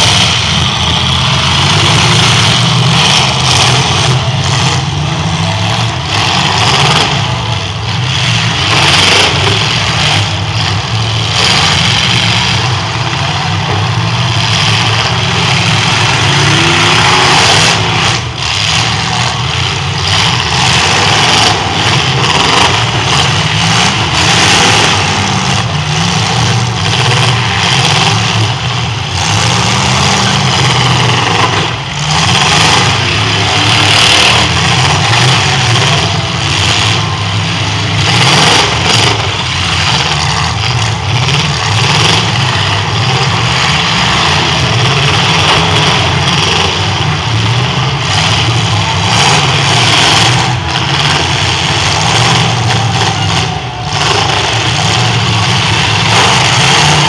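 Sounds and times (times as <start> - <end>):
car engines revving: 0.0 - 57.0
cars crashing: 0.0 - 57.0.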